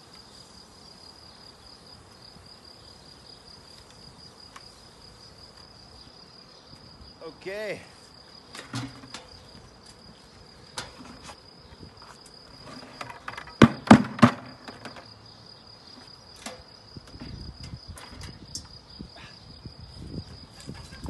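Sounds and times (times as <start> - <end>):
high-pitched insect trill: 0.0 - 13.6, 14.5 - 21.0.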